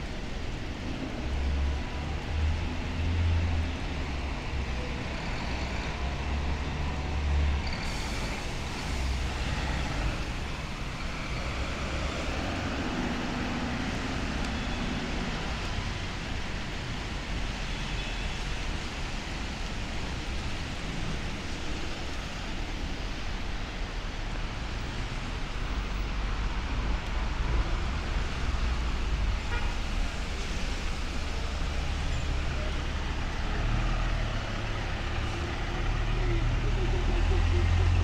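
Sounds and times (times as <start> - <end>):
traffic rumble: 0.0 - 38.0
tyres hissing on wet pavement: 0.0 - 38.0.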